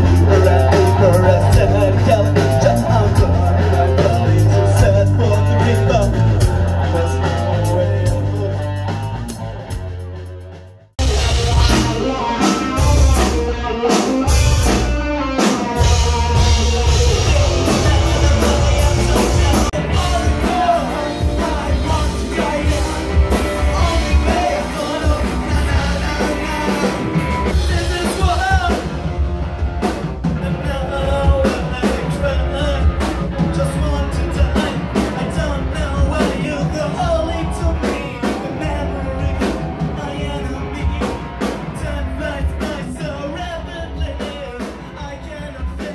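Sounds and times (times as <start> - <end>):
rock music with singing: 0.0 - 45.9.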